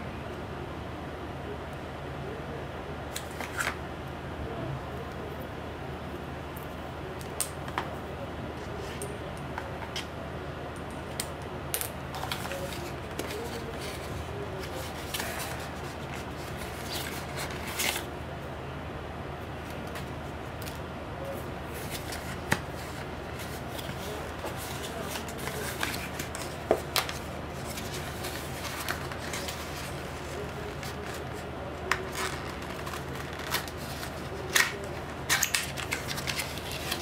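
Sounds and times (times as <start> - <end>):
steady low hum: 0.0 - 37.0
hands handling cardboard packaging: 12.1 - 18.1, 19.6 - 37.0
paper rustling: 12.1 - 18.1, 21.3 - 37.0.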